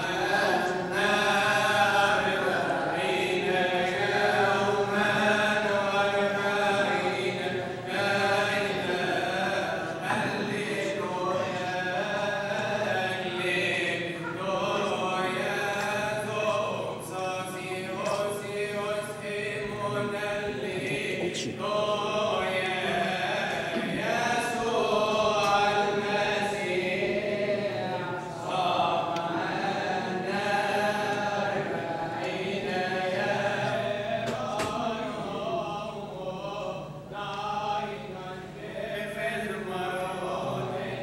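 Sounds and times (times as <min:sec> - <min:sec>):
group chanting a hymn: 0:00.0 - 0:41.0.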